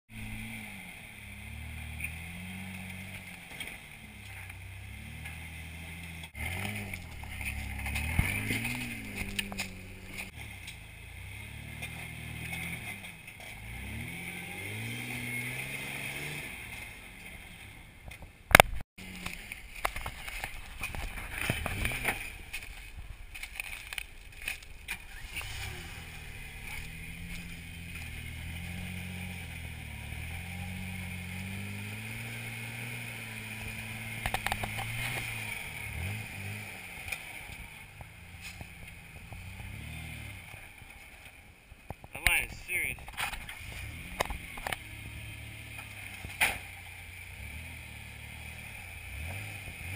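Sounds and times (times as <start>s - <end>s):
truck engine revving: 0.1s - 17.8s, 18.5s - 41.4s, 42.2s - 49.9s
knocks and scrapes: 1.9s - 10.8s, 16.7s - 45.0s.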